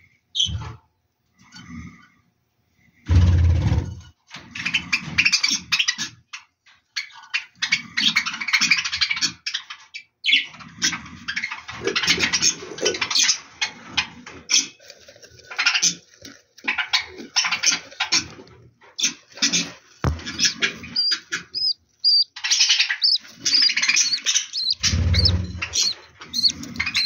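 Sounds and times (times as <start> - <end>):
budgerigars chirping and chattering: 7.0 - 13.8, 19.0 - 27.0.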